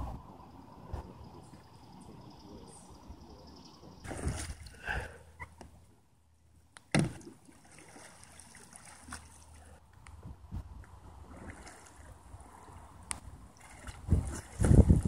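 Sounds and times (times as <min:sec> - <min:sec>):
water splashing around kayak: 0:04.0 - 0:05.1, 0:06.9 - 0:09.8, 0:11.0 - 0:15.0
loud thump: 0:06.9 - 0:07.2.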